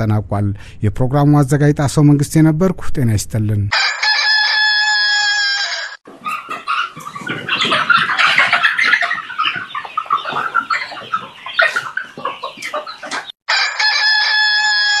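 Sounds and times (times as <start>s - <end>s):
chickens clucking and squawking: 3.7s - 15.0s.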